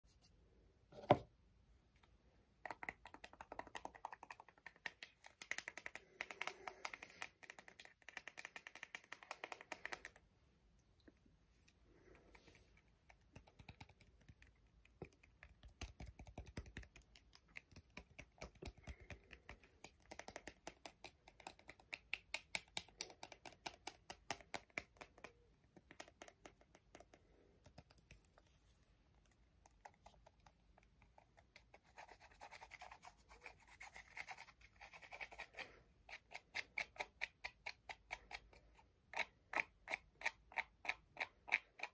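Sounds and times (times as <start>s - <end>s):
fingertips tapping container: 2.6s - 10.3s, 12.1s - 28.4s.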